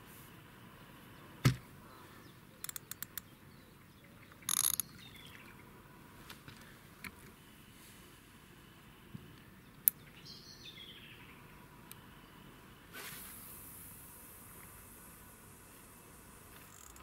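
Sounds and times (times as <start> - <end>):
fishing reel clicking: 4.5 - 4.9, 16.6 - 17.0.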